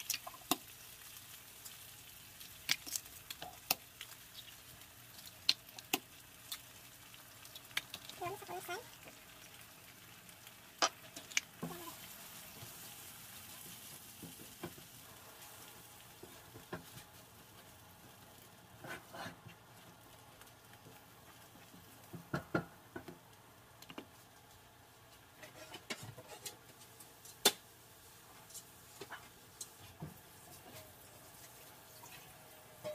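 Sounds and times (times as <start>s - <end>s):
faint sizzle of frying eggs: 0.0s - 32.9s
spatula scraping and tapping pan: 13.5s - 15.0s, 25.1s - 27.6s, 28.3s - 31.6s.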